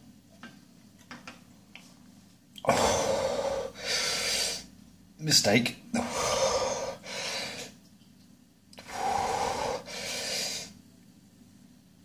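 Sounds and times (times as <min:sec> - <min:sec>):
man breathing heavily: 0:02.7 - 0:04.7, 0:06.0 - 0:07.8, 0:08.8 - 0:10.8.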